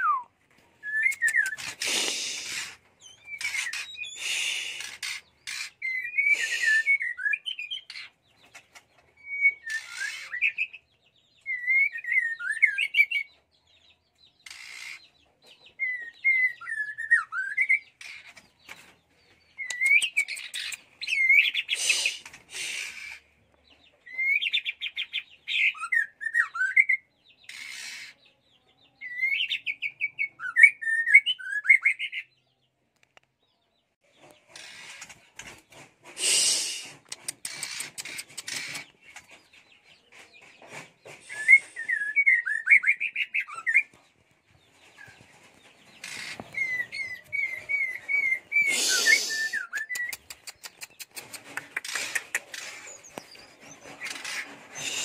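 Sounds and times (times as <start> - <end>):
bird whistling song: 0.0 - 5.1, 5.8 - 8.1, 9.2 - 10.8, 11.4 - 13.3, 15.7 - 18.0, 19.5 - 23.1, 24.1 - 27.6, 29.0 - 32.3, 41.2 - 44.0, 46.0 - 51.1, 51.8 - 55.0
harsh bird notes: 46.0 - 50.4.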